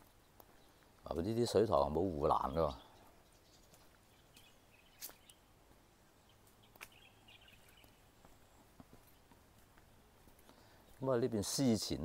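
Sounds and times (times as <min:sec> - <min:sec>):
faint bird chirps: 0:00.0 - 0:11.2.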